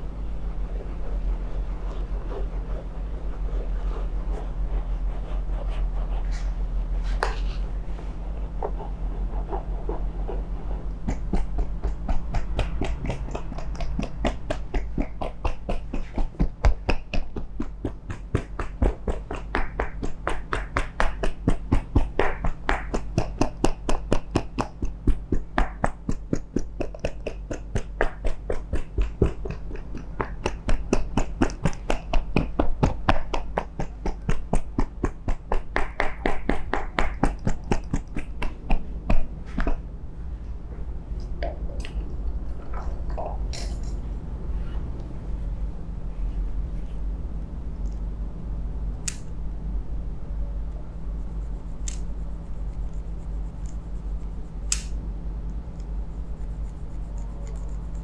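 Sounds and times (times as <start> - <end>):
rapid rhythmic tapping: 8.6 - 39.8.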